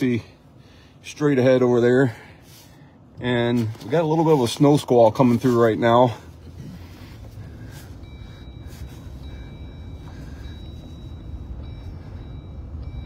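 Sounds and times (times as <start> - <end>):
engine idling: 0.0 - 13.0
gusty wind buffeting vehicle: 4.0 - 13.0.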